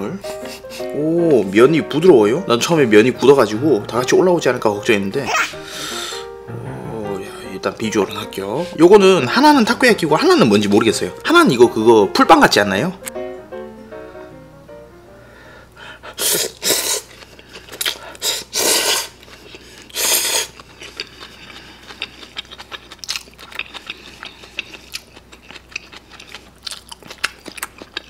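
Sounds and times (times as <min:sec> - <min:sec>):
noodle slurping: 0:16.2 - 0:22.8
wet chewing: 0:16.4 - 0:28.0.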